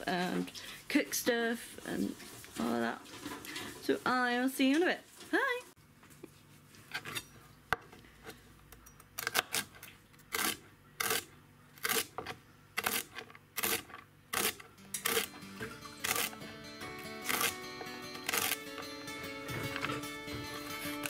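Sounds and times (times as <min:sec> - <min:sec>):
background music: 0:14.4 - 0:21.0
knife slicing celery on board: 0:16.0 - 0:16.4, 0:17.2 - 0:17.6, 0:18.2 - 0:18.6.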